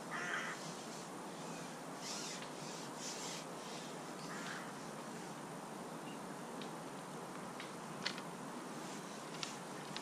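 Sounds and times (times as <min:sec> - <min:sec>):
outdoor background noise: 0:00.0 - 0:10.0
rustling scrapes: 0:00.4 - 0:05.4, 0:08.8 - 0:10.0.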